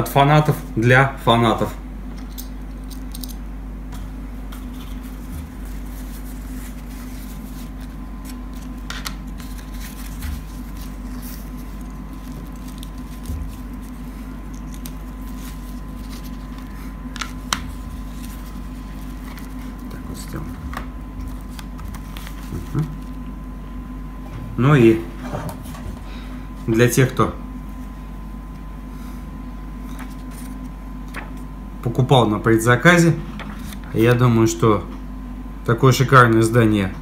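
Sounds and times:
steady hum: 0:00.0 - 0:37.0
paper and cloth rustling: 0:04.5 - 0:23.2.

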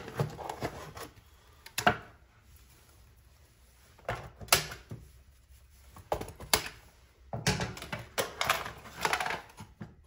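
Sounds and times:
cardboard boxes knocking and rustling: 0:00.0 - 0:01.2.

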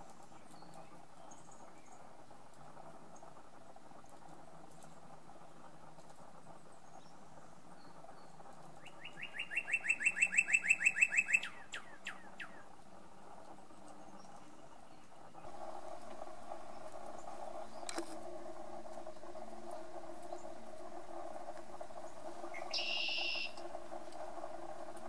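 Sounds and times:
bird singing down-slurred whistles: 0:08.8 - 0:12.6, 0:22.5 - 0:23.6.

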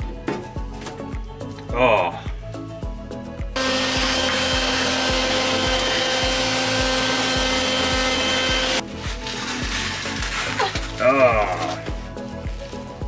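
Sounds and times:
shop vacuum motor whine: 0:03.6 - 0:08.8.

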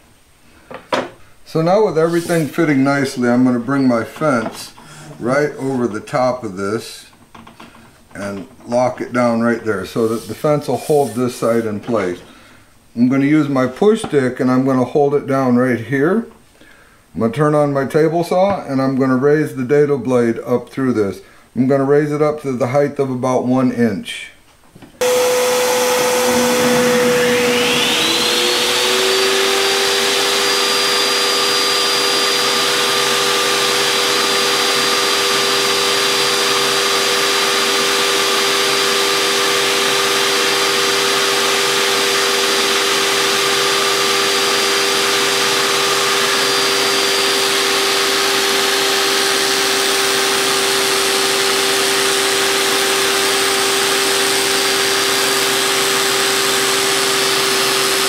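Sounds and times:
table saw motor whine: 0:25.0 - 0:58.0.

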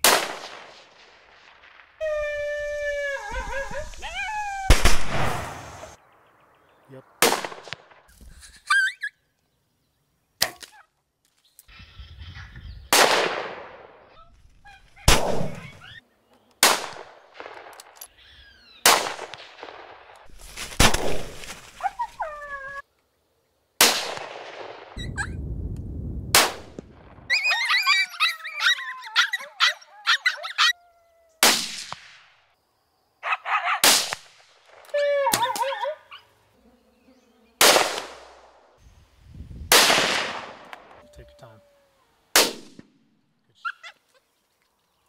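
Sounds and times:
coyotes yipping: 0:02.0 - 0:06.0, 0:08.4 - 0:09.3, 0:14.1 - 0:16.1, 0:21.6 - 0:22.9, 0:25.0 - 0:25.4, 0:27.2 - 0:31.8, 0:33.2 - 0:34.0, 0:34.9 - 0:36.6, 0:40.6 - 0:42.3, 0:43.5 - 0:44.4
rifle shots echoing: 0:07.2 - 0:08.0, 0:12.9 - 0:14.0, 0:18.8 - 0:20.1, 0:37.6 - 0:38.6, 0:39.7 - 0:41.0.

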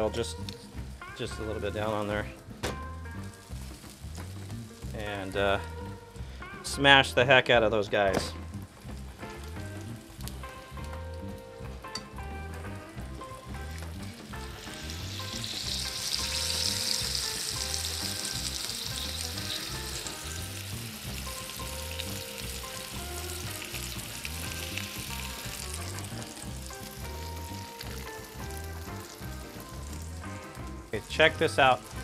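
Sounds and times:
faint background music with beat: 0:00.0 - 0:32.0
sausage and bacon sizzling: 0:00.0 - 0:32.0.

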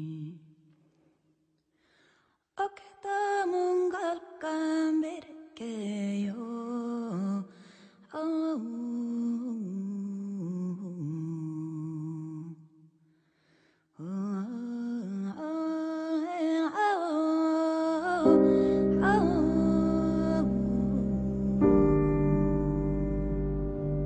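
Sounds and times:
wordless hummed vocal melody: 0:18.2 - 0:24.0.

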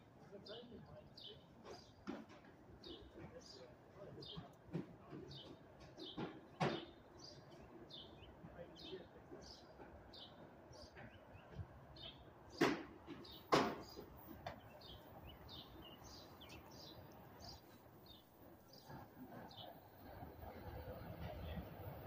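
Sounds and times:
small birds chirping: 0:00.3 - 0:22.0
sharp loud knocks: 0:12.6 - 0:14.6.

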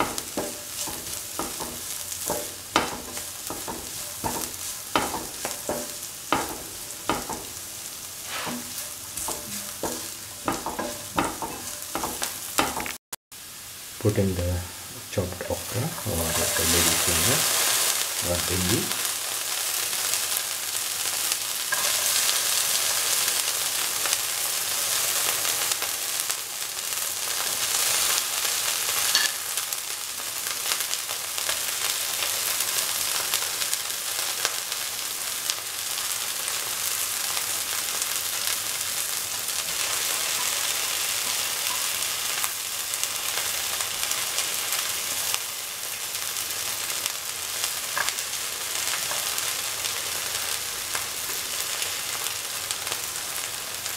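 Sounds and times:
spatula scraping pan: 0:00.0 - 0:12.9, 0:15.8 - 0:17.9, 0:21.7 - 0:22.4
okra sizzling in hot oil: 0:00.0 - 0:53.9.

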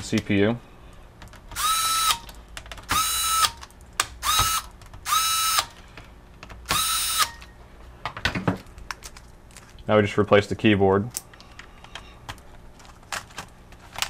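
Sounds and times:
electric screwdriver whirring: 0:01.6 - 0:02.3, 0:02.9 - 0:03.6, 0:04.2 - 0:05.8, 0:06.7 - 0:07.5.

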